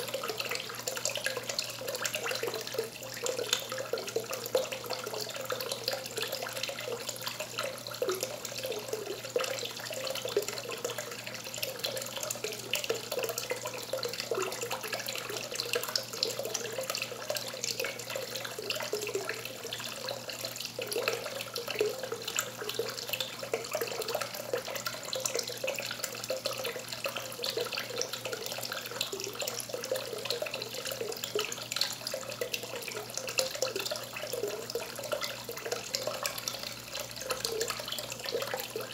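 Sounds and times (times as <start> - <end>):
water trickling into pool: 0.0 - 38.9.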